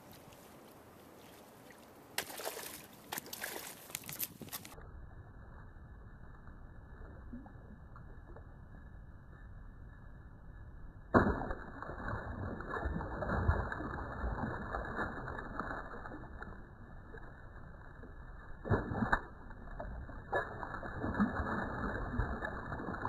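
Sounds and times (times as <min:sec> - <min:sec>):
fish splashing and thrashing: 0:02.2 - 0:04.8, 0:11.2 - 0:23.0
fish striking with loud splash: 0:11.2 - 0:15.1.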